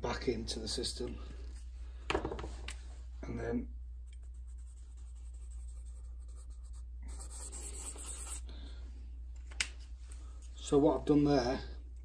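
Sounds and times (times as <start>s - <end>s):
steady low hum: 0.0s - 12.0s
marker pen scratching paper: 4.1s - 8.4s.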